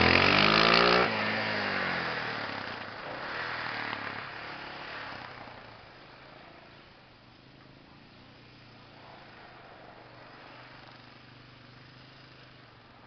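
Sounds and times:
quad engine accelerating away: 0:00.0 - 0:13.0.

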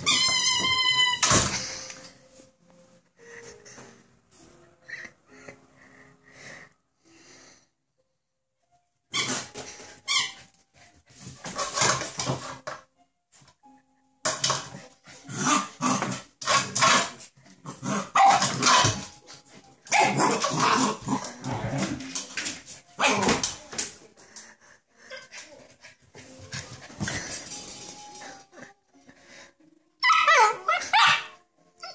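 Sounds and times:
puppy barking: 0:18.2 - 0:19.0, 0:30.0 - 0:31.4.

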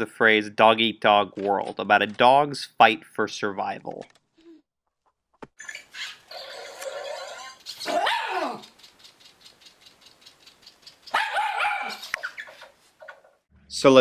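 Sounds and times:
faint rapid ticking: 0:07.6 - 0:11.3
dog barking: 0:07.8 - 0:08.6, 0:11.1 - 0:12.1.

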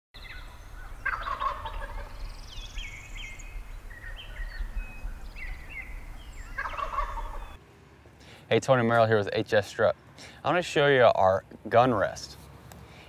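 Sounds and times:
turkey gobbling: 0:00.8 - 0:02.2, 0:05.4 - 0:07.6.

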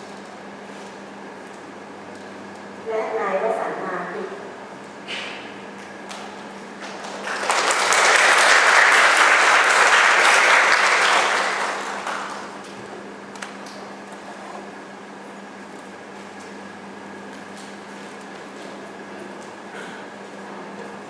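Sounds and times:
audience applauding: 0:06.8 - 0:12.6.

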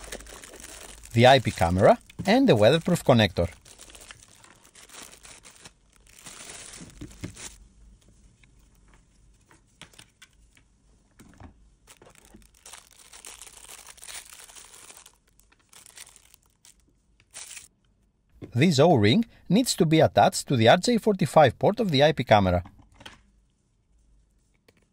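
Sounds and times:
plastic bags crinkling: 0:00.0 - 0:07.6, 0:11.9 - 0:17.7.

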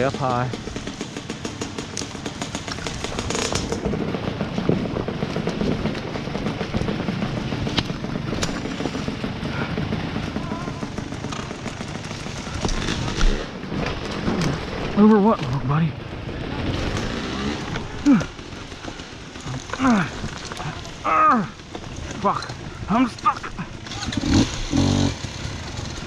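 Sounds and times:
dirt bike engine popping: 0:00.0 - 0:26.0.

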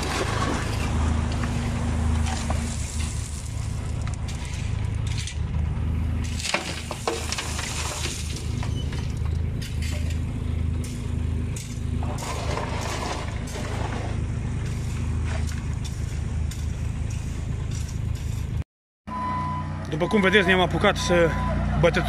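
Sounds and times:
diesel engine running: 0:00.0 - 0:22.0
stones clinking and crunching: 0:06.2 - 0:11.0
scraping: 0:06.2 - 0:18.6.

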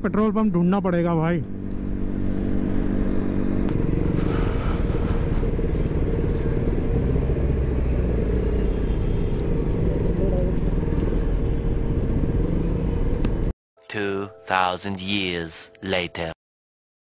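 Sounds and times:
motorcycle engine rumble: 0:01.4 - 0:13.5.

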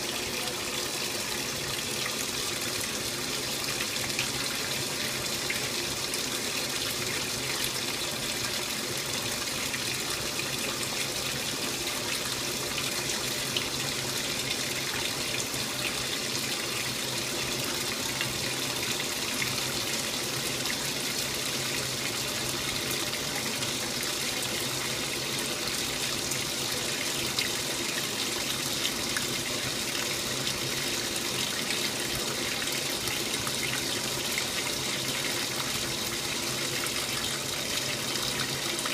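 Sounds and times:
washer churning and splashing: 0:00.0 - 0:38.9.

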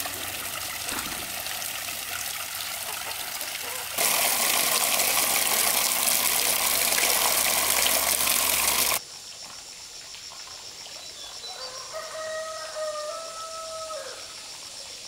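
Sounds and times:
water gushing into a pond: 0:00.0 - 0:09.0.

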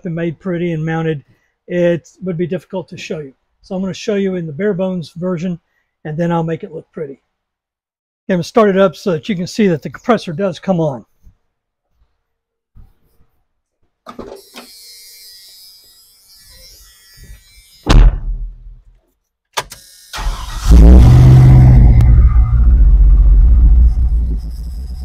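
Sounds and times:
loud thump: 0:17.9 - 0:18.8
engine cranking and starting: 0:20.1 - 0:22.2.

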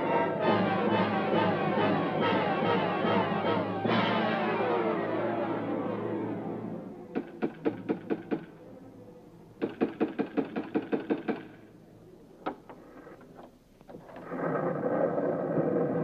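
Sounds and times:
rapid knocking: 0:07.2 - 0:08.5, 0:09.6 - 0:11.5.

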